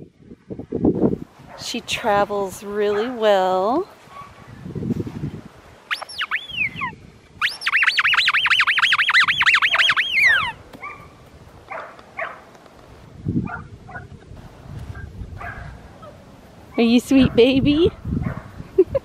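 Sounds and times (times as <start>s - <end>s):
squeaky dog toy squeaking: 5.9s - 10.5s.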